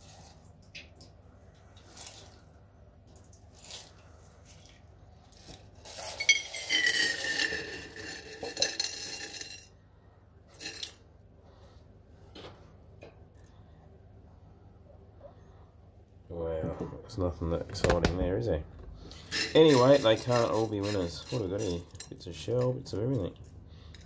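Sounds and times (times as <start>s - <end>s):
stones clinking in barrel: 5.9s - 9.7s.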